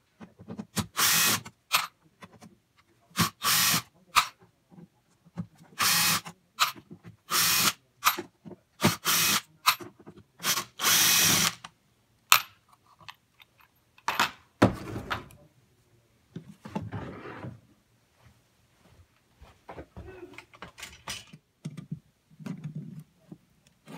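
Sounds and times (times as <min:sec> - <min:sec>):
cordless drill spinning: 0:00.9 - 0:01.4, 0:03.2 - 0:03.9, 0:05.8 - 0:06.3, 0:07.3 - 0:07.8, 0:08.8 - 0:09.4, 0:10.4 - 0:11.6
rustling and scraping: 0:16.4 - 0:21.4.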